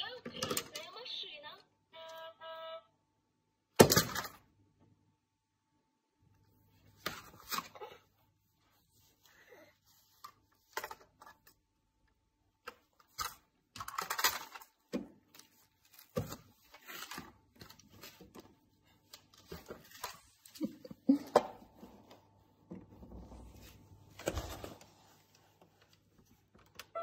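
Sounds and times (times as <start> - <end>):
plastic toys tapping and clicking: 0.2 - 0.9, 12.6 - 15.4.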